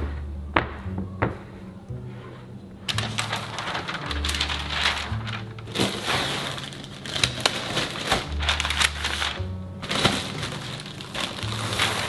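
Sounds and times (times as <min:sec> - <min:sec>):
background music: 0:00.0 - 0:12.0
parchment paper crinkling: 0:02.8 - 0:12.0
plastic zip bag rustling: 0:02.9 - 0:12.0.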